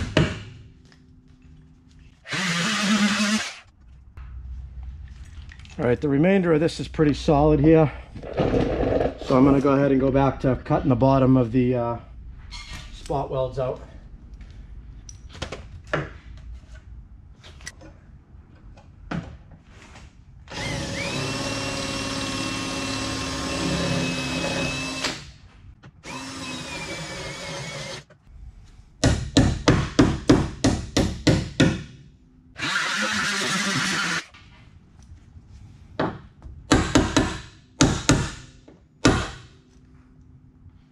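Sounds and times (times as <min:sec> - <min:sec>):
power tool whining: 0:02.2 - 0:03.6, 0:20.5 - 0:25.2, 0:26.0 - 0:28.1, 0:32.6 - 0:34.3.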